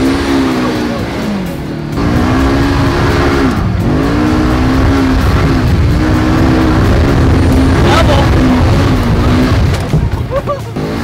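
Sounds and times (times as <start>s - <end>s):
off-road vehicle engine revving: 0.0s - 11.0s.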